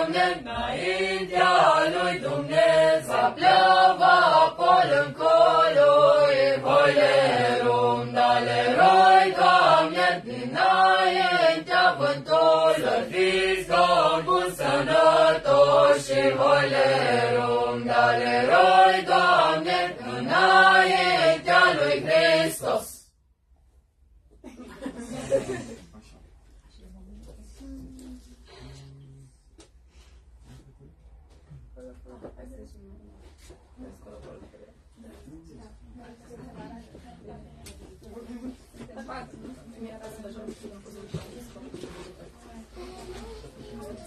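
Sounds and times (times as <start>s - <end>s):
group singing a carol: 0.0s - 23.0s.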